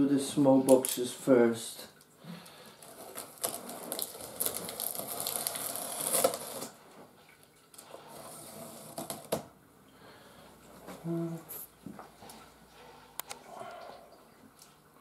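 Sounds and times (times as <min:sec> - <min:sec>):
box cutter slicing tape: 0:04.4 - 0:06.7.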